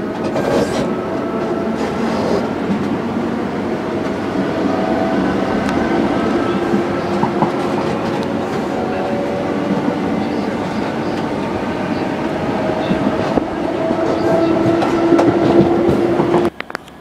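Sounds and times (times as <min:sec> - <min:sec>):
train rumble inside carriage: 0:00.0 - 0:17.0
wheels clicking over rail joints: 0:05.5 - 0:17.0.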